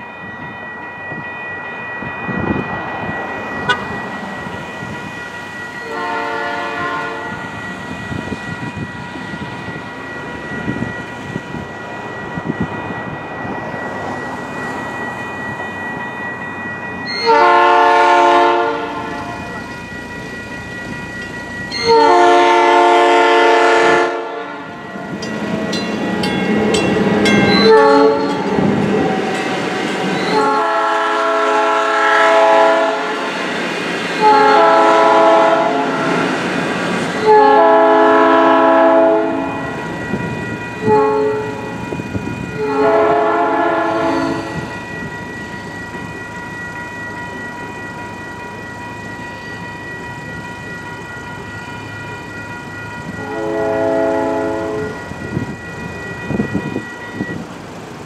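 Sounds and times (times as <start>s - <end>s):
crossing signal bell ringing: 0.0s - 58.0s
train wheels rumbling: 0.0s - 58.0s
train horn blasts: 3.6s - 4.0s, 5.8s - 7.4s, 17.1s - 19.5s, 21.7s - 24.8s, 27.6s - 29.0s, 30.3s - 33.3s, 34.2s - 36.2s, 37.2s - 39.7s, 40.8s - 41.7s, 42.6s - 44.7s, 53.2s - 55.0s.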